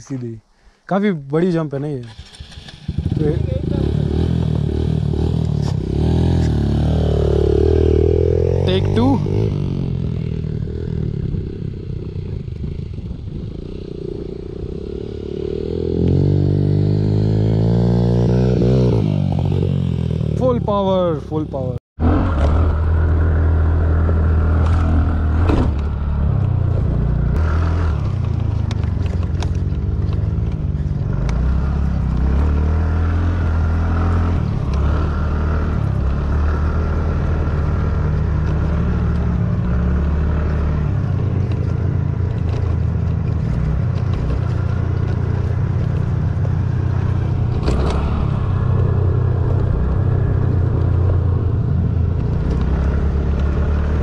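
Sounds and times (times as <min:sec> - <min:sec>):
scooter engine revving: 0:02.0 - 0:11.7, 0:22.0 - 0:54.0.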